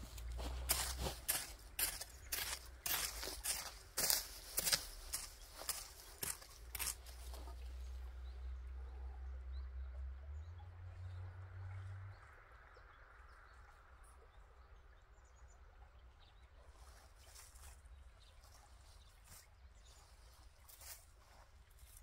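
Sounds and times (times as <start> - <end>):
dry soil scuffs: 0.0 - 7.8, 18.6 - 22.0.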